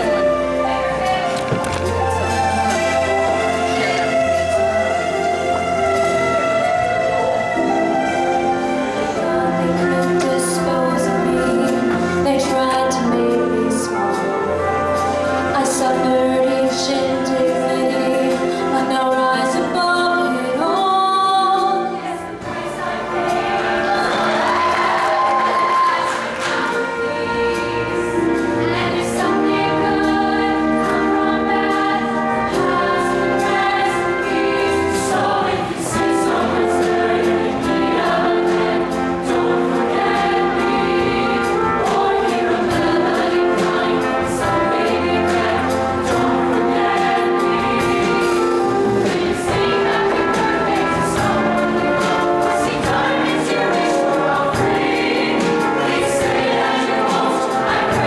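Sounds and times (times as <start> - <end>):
instrumental accompaniment with bass: 0.0 - 58.0
mixed choir singing in harmony: 0.0 - 58.0.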